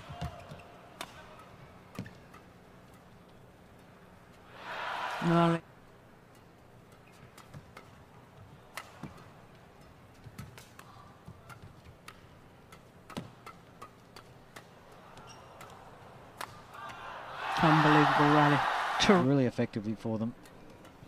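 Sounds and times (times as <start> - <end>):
rackets smacking shuttlecock: 0.0 - 4.0, 6.3 - 17.0, 20.3 - 21.0.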